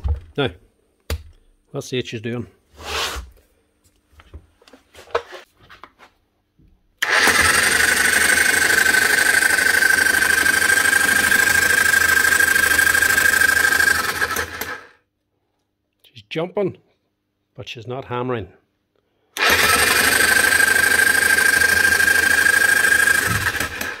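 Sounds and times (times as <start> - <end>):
breaker hammer motor whining: 7.0 - 14.9, 19.4 - 24.0.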